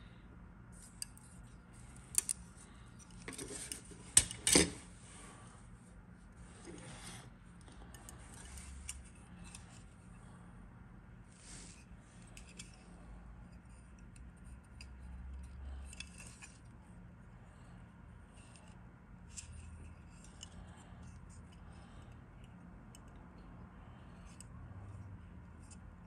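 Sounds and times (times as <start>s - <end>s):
plastic parts clicking: 2.1s - 2.4s.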